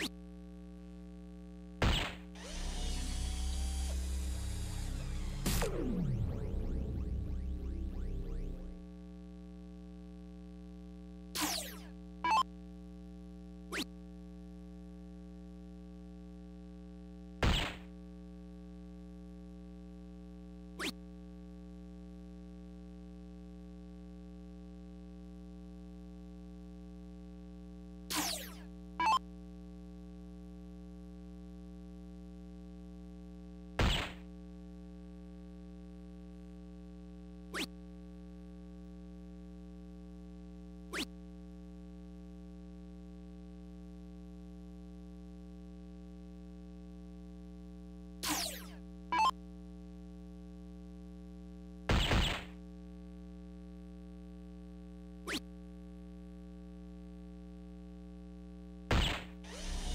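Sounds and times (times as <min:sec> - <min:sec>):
electronic zaps sweeping down: 0:01.8 - 0:08.8, 0:11.4 - 0:12.4, 0:13.7 - 0:13.9, 0:17.4 - 0:17.9, 0:28.1 - 0:29.2, 0:33.8 - 0:34.2, 0:37.5 - 0:37.7, 0:40.9 - 0:41.1, 0:48.2 - 0:49.3, 0:51.9 - 0:52.6, 0:58.9 - 0:59.9.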